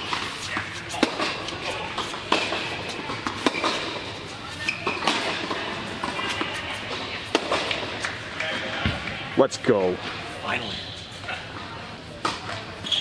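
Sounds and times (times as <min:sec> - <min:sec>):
racket striking tennis ball: 0:00.0 - 0:08.1
tennis ball bouncing: 0:00.0 - 0:08.1.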